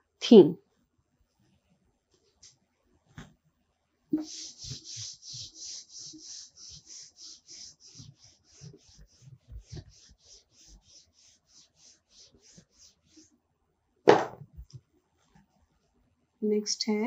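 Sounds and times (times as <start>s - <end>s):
duster rubbing whiteboard: 4.1s - 13.4s.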